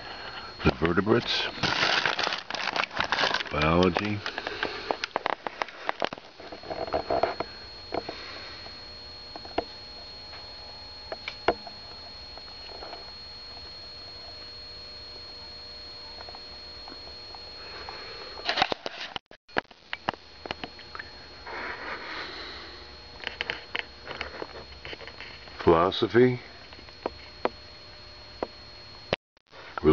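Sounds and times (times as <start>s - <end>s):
faint high whine: 0.0s - 29.9s
breathing and sniffing: 21.4s - 22.9s.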